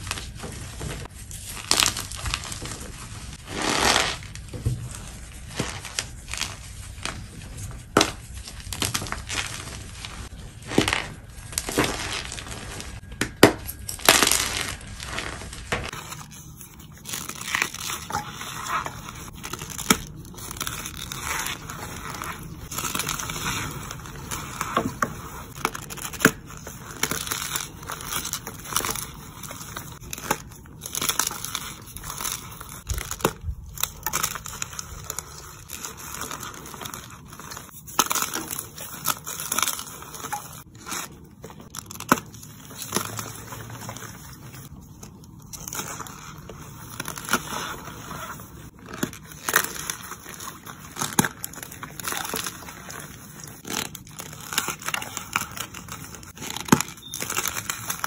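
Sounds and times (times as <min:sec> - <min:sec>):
cornstarch squeaking and crunching: 0:00.0 - 0:58.0
chalk crumbling: 0:13.8 - 0:58.0.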